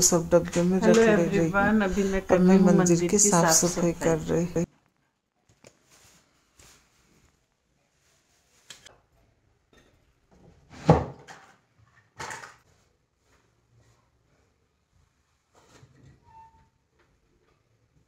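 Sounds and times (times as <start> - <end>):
objects knocking and clattering: 9.7 - 12.7.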